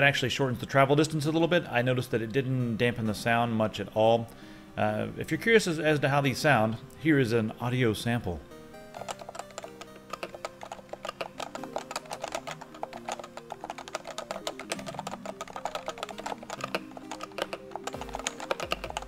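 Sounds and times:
quiet background music: 0.0 - 19.0
fast keyboard typing: 8.9 - 19.0.

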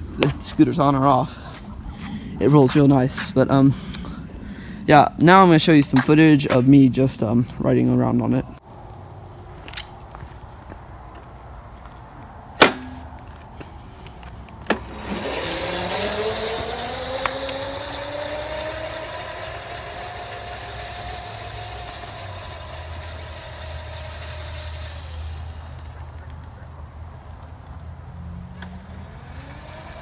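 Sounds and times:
sharp knocks: 12.6 - 13.1
electric scooter motor whining: 12.8 - 30.0.

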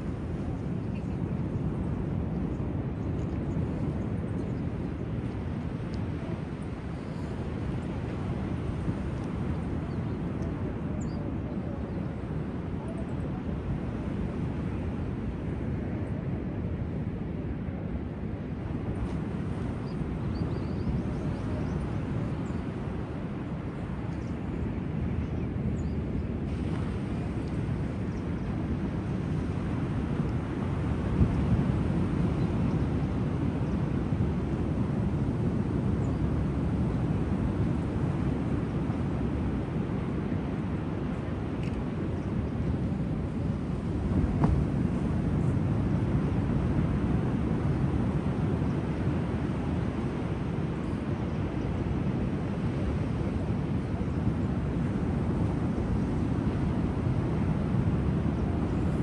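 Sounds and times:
wind buffeting microphone: 0.0 - 59.0
sea waves rumbling: 26.2 - 59.0.

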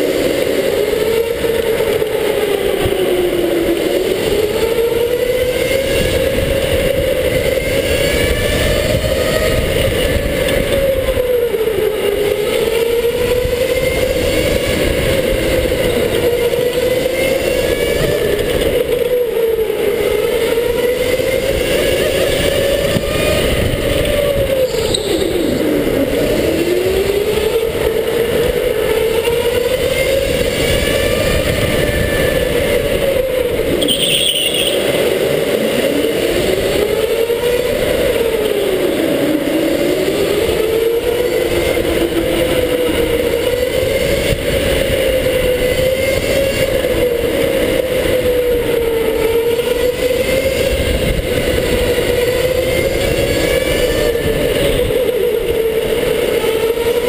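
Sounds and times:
electric go-kart motor whining: 0.0 - 57.0
steady rumble from track: 0.0 - 57.0
brief high squeaks: 24.7 - 25.7, 33.8 - 34.9.

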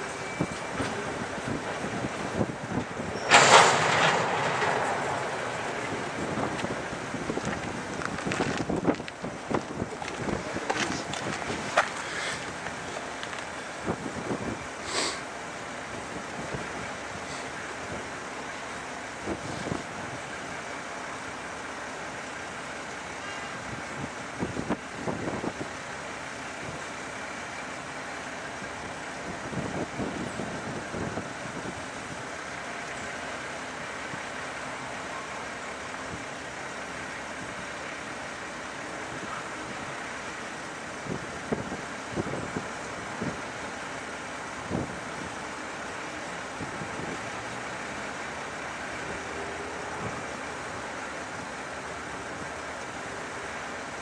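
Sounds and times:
freight train rumbling past: 0.0 - 21.7
train wheels clattering and clanking: 2.8 - 6.8.

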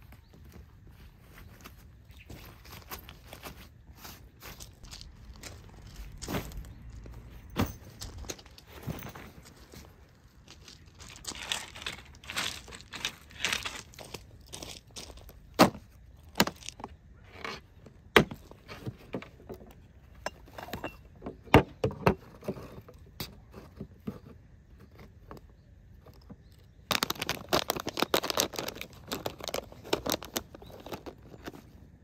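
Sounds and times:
gear rattling and rustling: 0.4 - 16.8, 24.8 - 31.9
camping gear clicks and knocks: 1.5 - 32.0.

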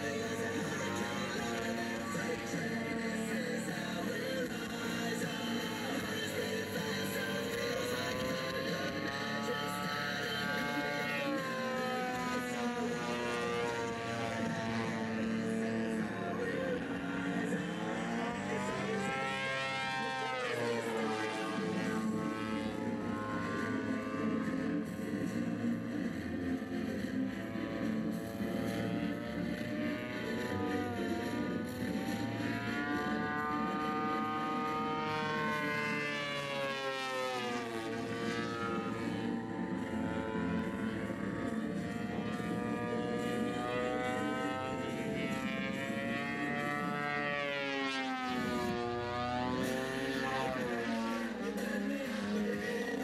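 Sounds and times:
model plane engine droning: 0.0 - 53.0.

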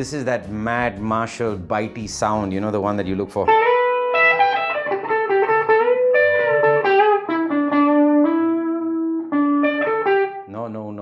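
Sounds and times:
overdriven electric guitar lead: 3.5 - 10.5.

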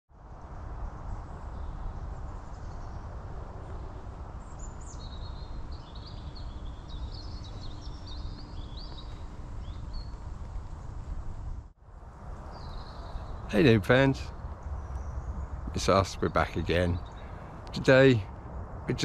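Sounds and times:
small bird chirping and trilling: 4.4 - 10.2.

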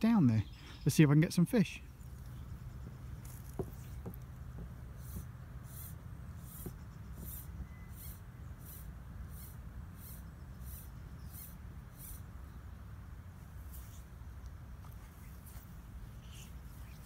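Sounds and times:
faint high-pitched chirp: 6.9 - 8.6.

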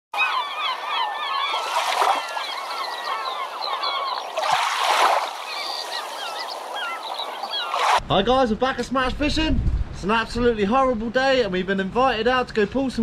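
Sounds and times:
flock of birds squawking: 0.2 - 7.8.

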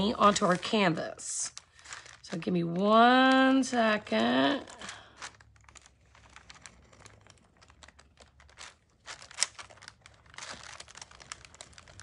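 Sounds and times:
paper crinkling: 0.0 - 12.0.

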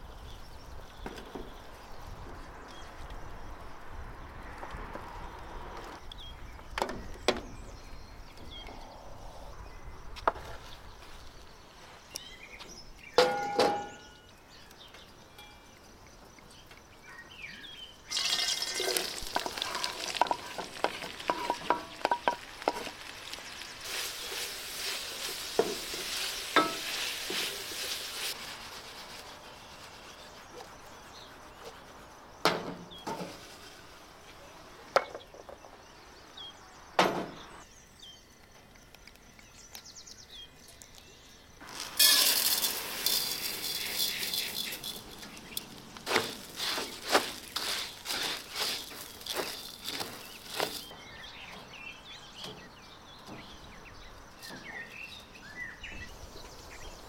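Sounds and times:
ringing metal clank: 13.2 - 14.2, 42.0 - 45.4
food sizzling in a pan: 18.1 - 29.1, 41.6 - 50.9
utensil clicks and stirring: 41.6 - 50.9.

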